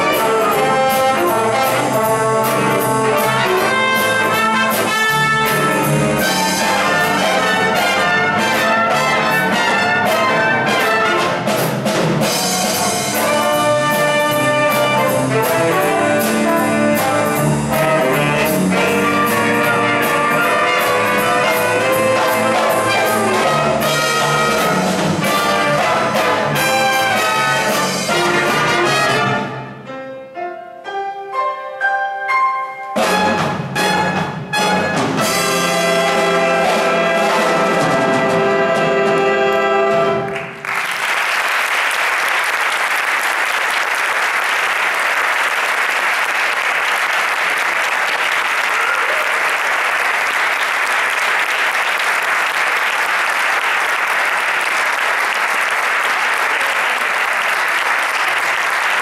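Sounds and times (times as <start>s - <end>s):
big band playing swing: 0.0s - 59.0s
audience applauding: 40.2s - 59.0s.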